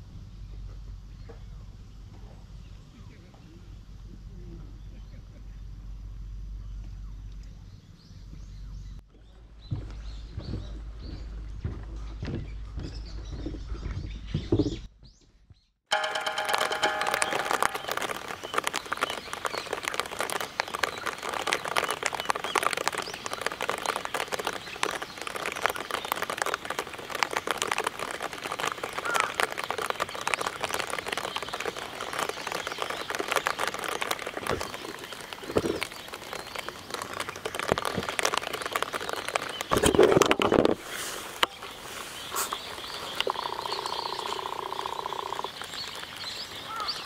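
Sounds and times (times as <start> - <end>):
rain falling on a pond: 15.9 - 47.0.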